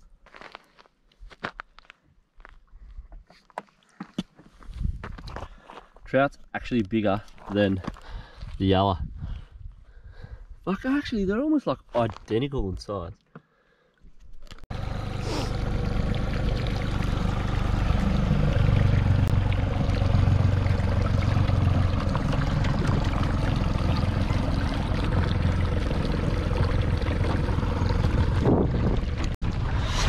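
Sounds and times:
boat motor hum: 14.7s - 29.4s
water rushing past hull: 14.8s - 30.0s.

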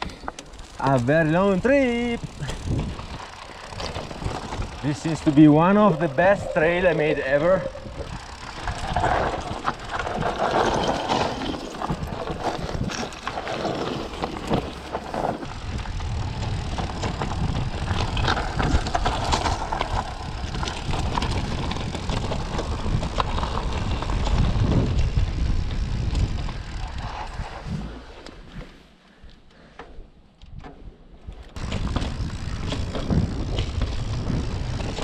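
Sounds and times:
bike knocks and rattles: 0.0s - 6.8s, 7.6s - 26.8s, 29.8s - 35.0s
tyres crunching over stones: 0.0s - 24.3s
wind rumble on microphone: 1.6s - 13.3s, 15.4s - 28.7s, 30.5s - 35.0s.

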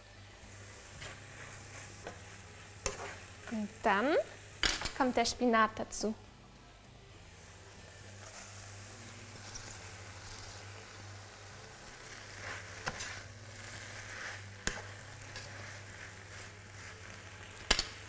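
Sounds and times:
vegetables sizzling in oil: 0.0s - 6.1s, 7.1s - 18.0s
spatula stirring: 0.7s - 3.8s, 8.1s - 10.7s, 11.4s - 17.6s.

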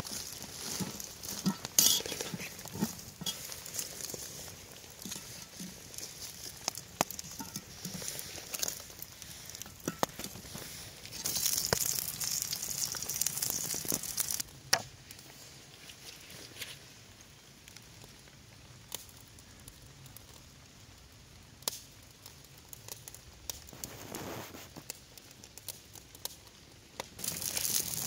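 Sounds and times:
food sizzling: 0.0s - 14.4s, 27.2s - 28.0s.

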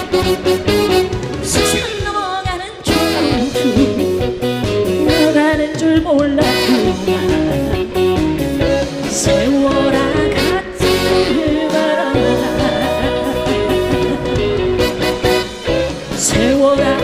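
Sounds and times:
live band playing disco: 0.0s - 17.0s
woman singing: 1.5s - 4.2s, 5.0s - 8.0s, 9.0s - 14.8s, 16.1s - 17.0s.

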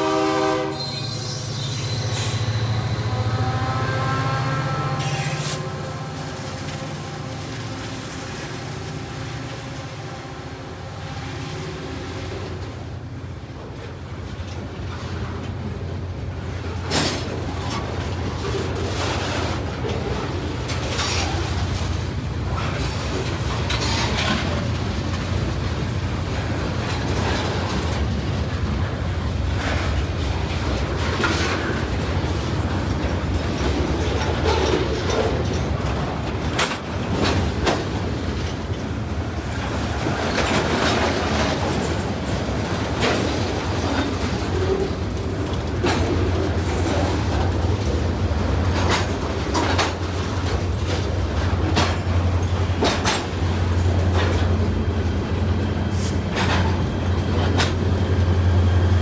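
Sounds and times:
low train rumble: 0.0s - 59.0s
train wheels clicking over rail joints: 12.2s - 59.0s.

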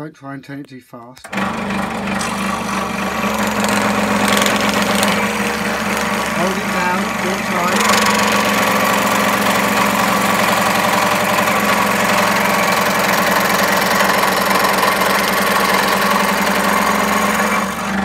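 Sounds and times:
scroll saw cutting wood: 1.2s - 18.0s.

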